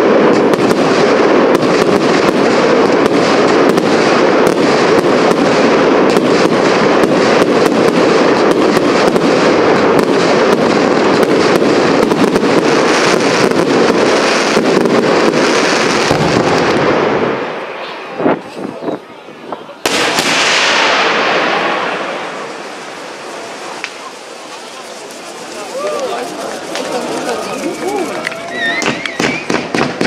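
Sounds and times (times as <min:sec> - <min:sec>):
fireworks cracking and popping: 0:00.0 - 0:30.0
fireworks shells bursting: 0:19.9 - 0:30.0.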